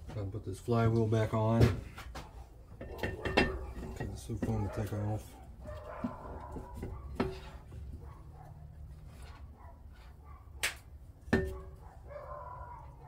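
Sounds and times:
metal tools clanking on workbench: 0:02.8 - 0:04.9.

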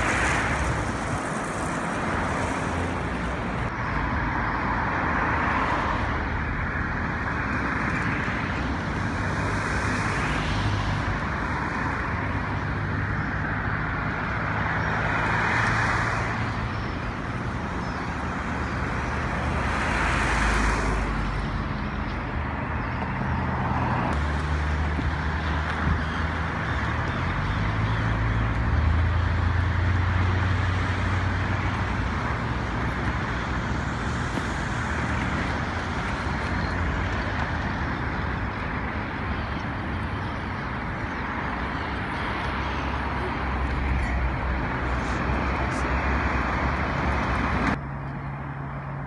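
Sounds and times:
vehicles passing on road: 0:00.0 - 0:49.0.

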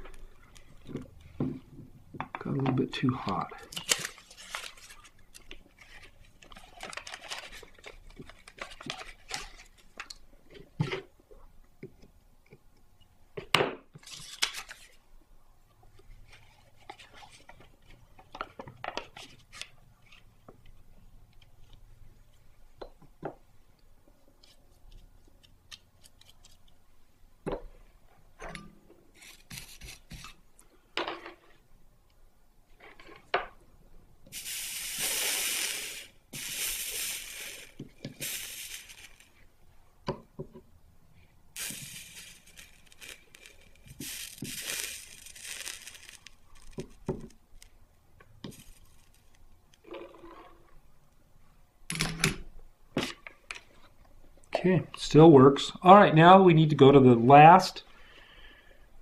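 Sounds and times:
paper rustling: 0:03.8 - 0:09.9, 0:14.0 - 0:15.0
soldering iron hiss: 0:34.3 - 0:39.3, 0:41.6 - 0:46.4.

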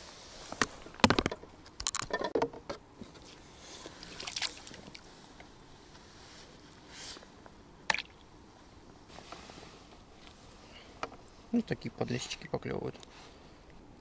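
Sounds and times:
water splashing and sloshing: 0:00.8 - 0:05.2, 0:07.8 - 0:08.3.

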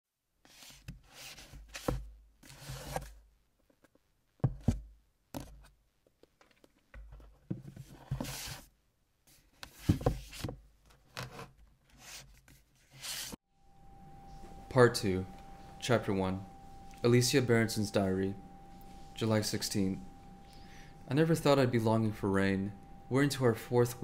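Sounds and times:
rustling and scraping handling noises: 0:00.5 - 0:04.8, 0:05.4 - 0:08.7, 0:09.3 - 0:13.4.

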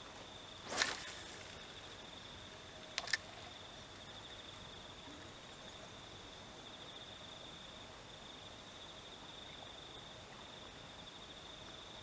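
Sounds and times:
insects chirring: 0:00.0 - 0:12.0
sharp clicks: 0:03.0 - 0:03.3.

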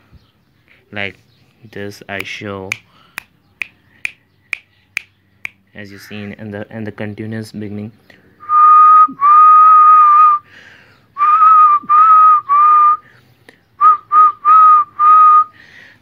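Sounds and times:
person whistling high note: 0:11.2 - 0:13.0.

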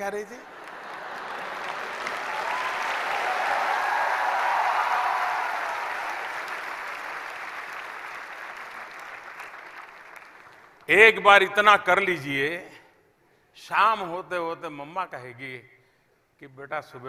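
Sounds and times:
audience applauding: 0:00.4 - 0:10.9.

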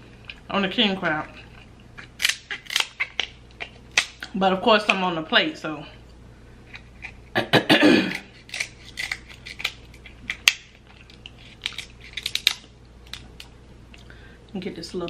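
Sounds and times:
crab shell cracking: 0:01.6 - 0:04.3, 0:08.1 - 0:13.5
kitchen scissors snipping shell: 0:02.2 - 0:03.3, 0:08.1 - 0:10.6, 0:11.6 - 0:13.2.

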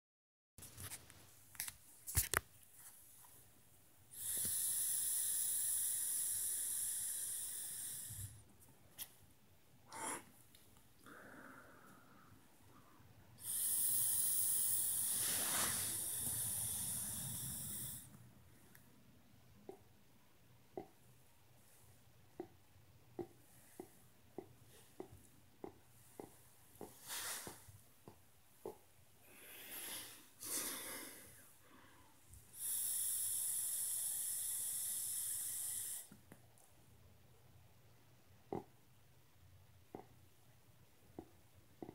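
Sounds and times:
person exhaling vapour: 0:04.1 - 0:08.4, 0:09.9 - 0:10.3, 0:13.4 - 0:18.2, 0:26.2 - 0:27.7, 0:29.2 - 0:36.2
vape pen hissing: 0:04.2 - 0:08.4, 0:13.4 - 0:18.1, 0:32.5 - 0:36.1.

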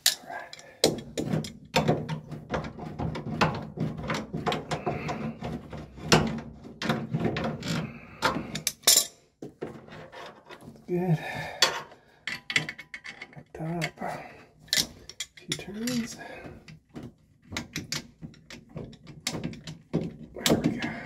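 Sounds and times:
hand tools clicking on metal: 0:00.0 - 0:05.5, 0:07.6 - 0:09.1, 0:14.7 - 0:21.0.

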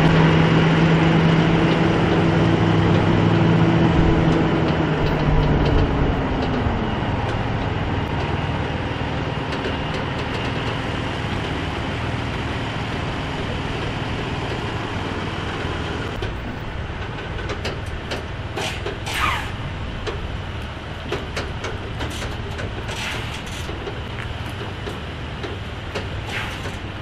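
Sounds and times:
truck rumbling slowly: 0:00.0 - 0:27.0
clicks and creaks: 0:16.1 - 0:26.9
short falling squeal: 0:18.6 - 0:19.6.

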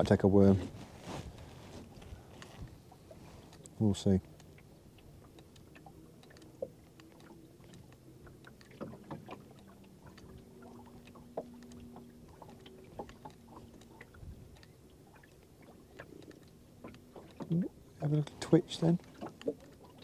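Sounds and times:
small waves lapping against hull: 0:00.0 - 0:20.0.

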